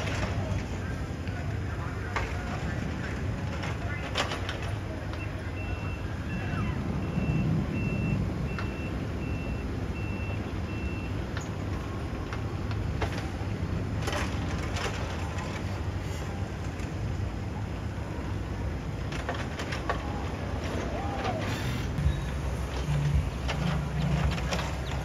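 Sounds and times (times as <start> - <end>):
heavy equipment engines humming: 0.0 - 25.0
backup alarm beeping: 5.1 - 11.2, 22.0 - 25.0.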